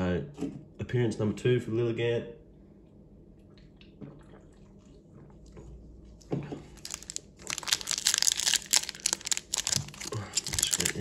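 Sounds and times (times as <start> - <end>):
foil wrapper crinkling: 6.8 - 11.0.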